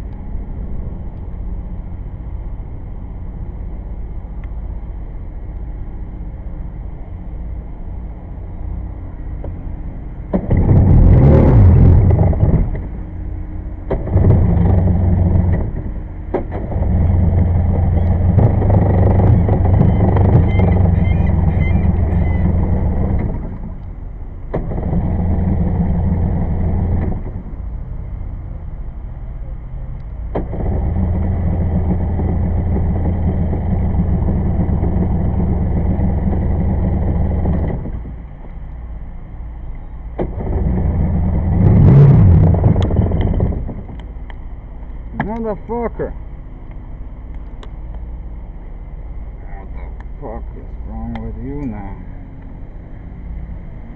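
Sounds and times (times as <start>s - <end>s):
two-stroke watercraft engine revving: 10.4s - 23.8s, 24.5s - 27.4s, 30.4s - 38.2s, 40.2s - 44.2s.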